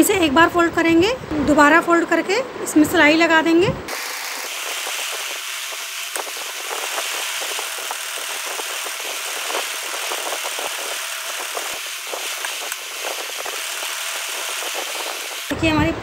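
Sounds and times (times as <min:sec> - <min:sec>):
sewing machine whirring: 0:03.9 - 0:15.6.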